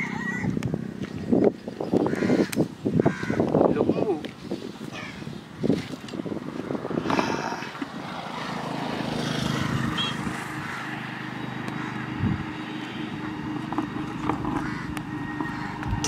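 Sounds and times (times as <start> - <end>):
motor engine running: 7.0 - 16.0.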